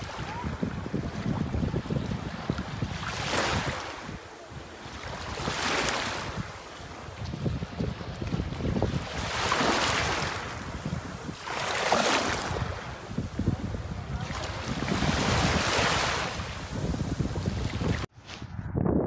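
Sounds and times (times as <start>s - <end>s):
wind rumble on microphone: 0.0s - 19.0s
waves washing over pebbles: 8.2s - 13.2s, 14.3s - 18.1s.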